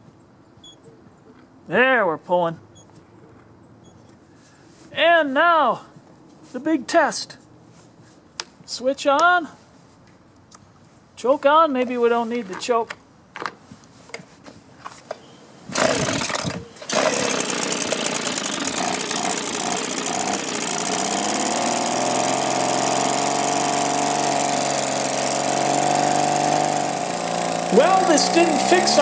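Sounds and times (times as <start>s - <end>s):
pull cord burst: 15.7s - 23.8s
leaf blower engine running: 15.7s - 29.0s.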